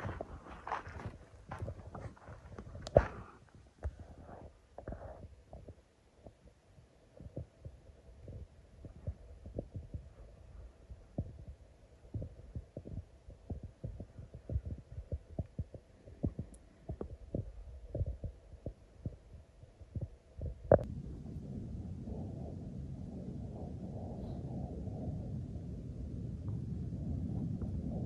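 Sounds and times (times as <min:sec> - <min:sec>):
irregular low thumps: 0:00.0 - 0:06.4, 0:07.1 - 0:28.0
faint steady hum: 0:00.0 - 0:28.0.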